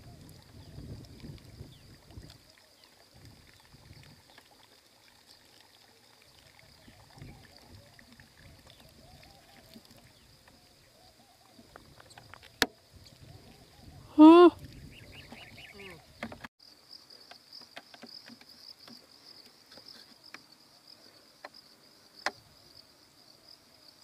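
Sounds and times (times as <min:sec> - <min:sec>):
high insect drone: 0:00.0 - 0:24.0
faint chirping calls: 0:01.6 - 0:16.4.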